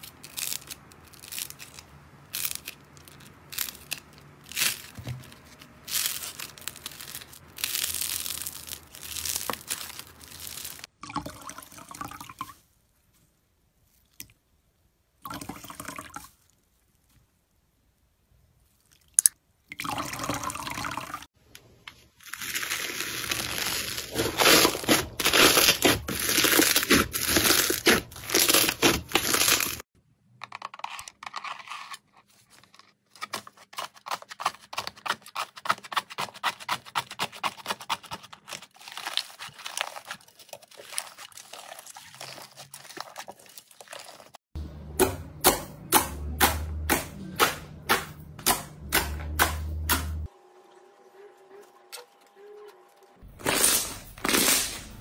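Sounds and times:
slime crackling: 0.0s - 10.9s, 22.3s - 29.8s.

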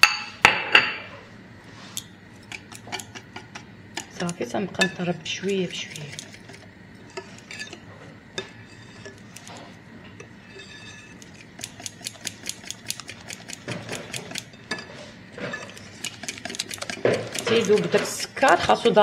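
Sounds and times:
wire whisk clicking against bowl: 2.0s - 6.6s, 11.2s - 14.6s, 15.7s - 19.0s.

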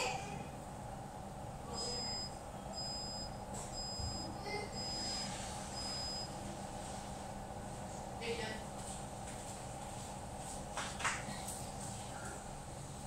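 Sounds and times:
refrigerator alarm beeping: 1.6s - 6.5s.

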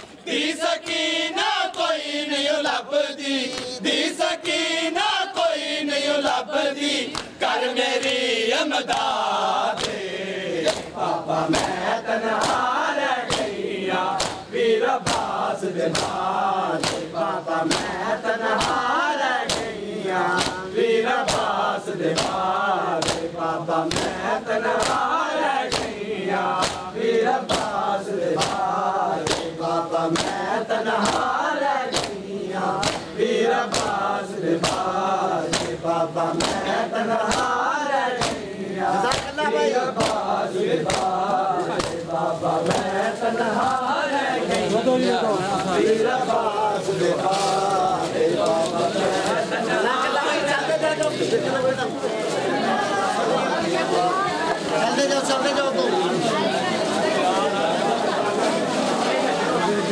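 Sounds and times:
men chanting in unison: 0.0s - 59.9s
hands slapping chests: 7.1s - 7.4s, 8.8s - 10.0s, 10.6s - 12.7s, 13.3s - 13.6s, 14.2s - 18.0s, 18.6s - 23.3s, 23.9s - 25.1s, 25.7s - 32.2s, 32.8s - 43.0s.

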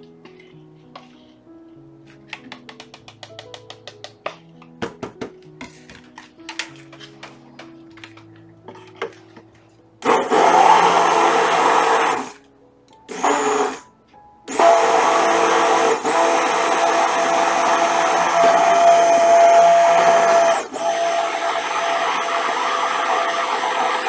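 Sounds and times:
soft background music: 0.0s - 23.9s
electric stick blender running: 10.0s - 12.4s, 13.1s - 13.8s, 14.5s - 24.0s.

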